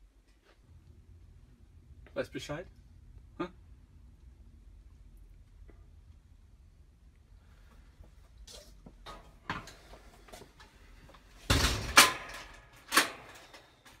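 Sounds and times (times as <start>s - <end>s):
metal cage door rattling and banging: 11.4s - 14.0s.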